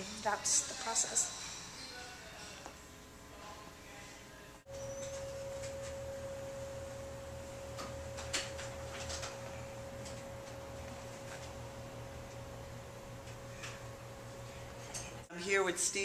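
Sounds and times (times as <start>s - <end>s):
electrical whine: 4.7s - 15.3s
pulsing machine hum: 4.7s - 15.3s.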